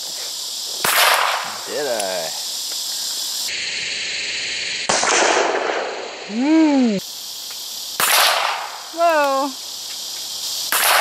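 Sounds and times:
gunshots echoing: 0:00.8 - 0:01.6, 0:04.9 - 0:05.9, 0:10.7 - 0:11.0
person exclaiming: 0:06.3 - 0:07.0, 0:09.0 - 0:09.6.

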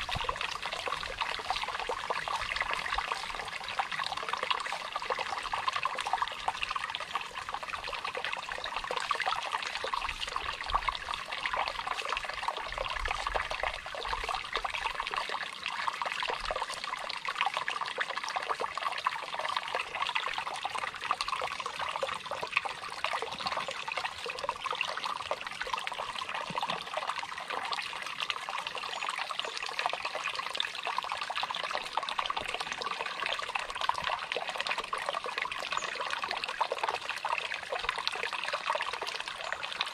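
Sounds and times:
stream babbling over stones: 0:00.0 - 0:39.9.

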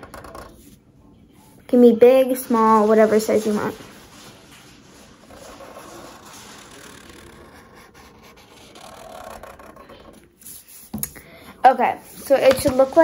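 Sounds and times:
marker scratching on paper: 0:02.5 - 0:11.0.

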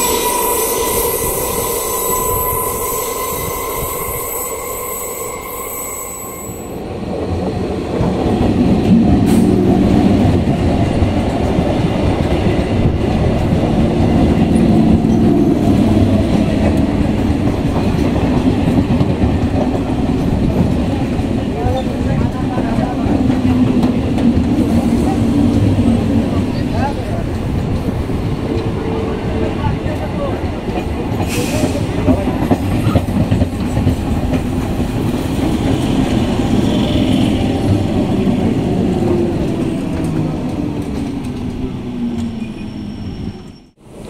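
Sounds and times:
steady high tone: 0:00.0 - 0:07.0
train coaches rumbling past: 0:00.0 - 0:44.0
train wheel clatter: 0:29.4 - 0:42.7.

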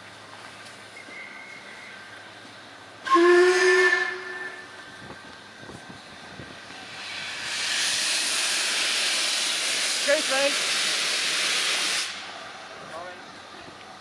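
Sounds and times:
steam locomotive whistle: 0:03.0 - 0:04.8
steam hissing: 0:06.5 - 0:12.5.

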